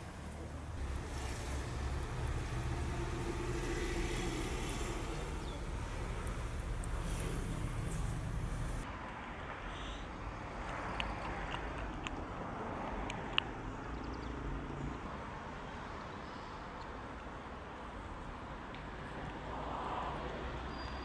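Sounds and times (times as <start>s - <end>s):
low rumble: 0.8s - 8.8s.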